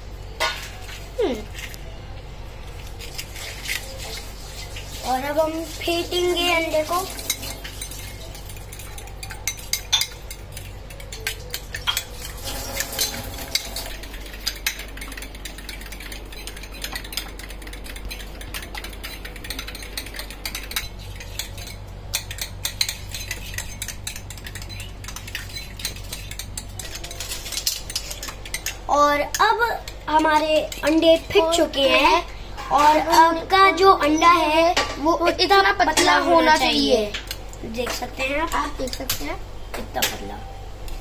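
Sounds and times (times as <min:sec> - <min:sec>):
forks beating eggs in bowls: 0:02.7 - 0:39.4.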